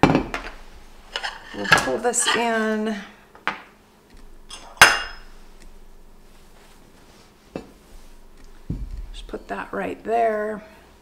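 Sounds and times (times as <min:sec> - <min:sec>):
ceramic dish clink: 0:04.5 - 0:05.3.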